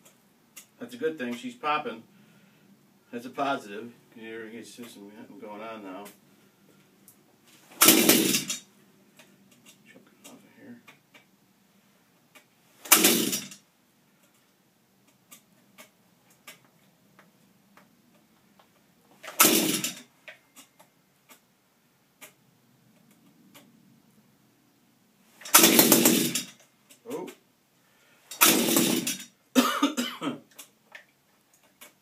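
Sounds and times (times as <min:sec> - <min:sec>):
engine cranking on pull-start: 0:07.8 - 0:08.6, 0:12.8 - 0:13.6, 0:19.2 - 0:20.0, 0:25.4 - 0:26.6, 0:28.3 - 0:29.3.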